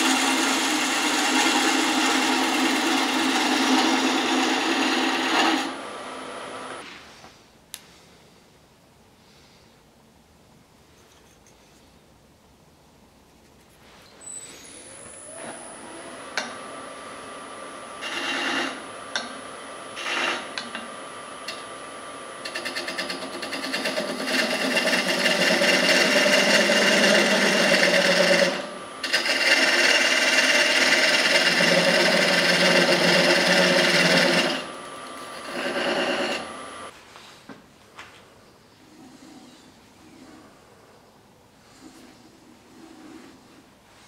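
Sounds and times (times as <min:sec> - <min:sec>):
turning tool cutting wood: 0:00.0 - 0:06.8, 0:14.7 - 0:36.9
wood lathe whine: 0:00.0 - 0:06.8, 0:14.5 - 0:36.9.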